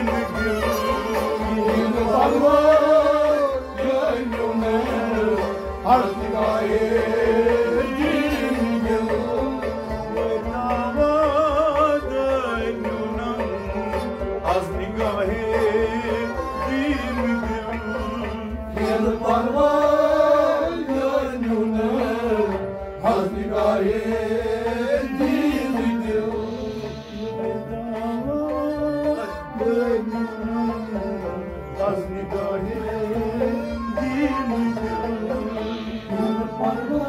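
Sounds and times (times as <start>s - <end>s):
hand drum percussion: 0.0s - 37.0s
person singing: 0.0s - 37.0s
instrumental drone: 15.2s - 28.2s, 29.2s - 37.0s.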